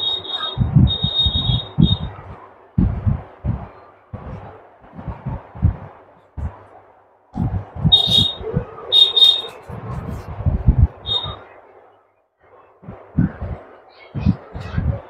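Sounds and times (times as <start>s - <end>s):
high-pitched electronic beeps: 0.0s - 2.2s, 7.9s - 9.6s, 11.0s - 11.4s.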